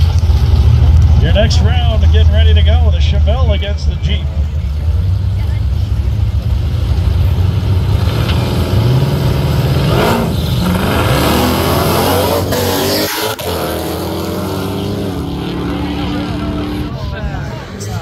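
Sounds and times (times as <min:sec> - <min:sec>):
car engines idling and revving: 0:00.0 - 0:18.0
cars accelerating hard: 0:06.3 - 0:18.0.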